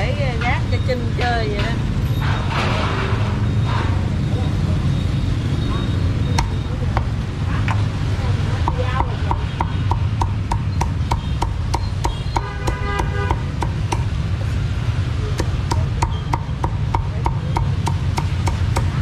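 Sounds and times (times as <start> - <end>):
cleaver chopping on wooden block: 6.4 - 7.1, 8.6 - 14.2, 15.3 - 19.0.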